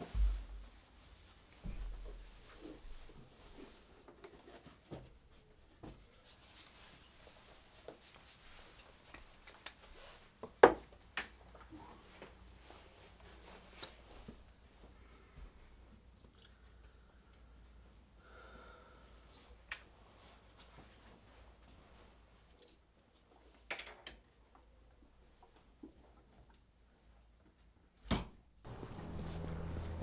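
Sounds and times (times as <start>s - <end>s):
quiet rustling: 19.3s - 23.6s, 28.7s - 30.0s.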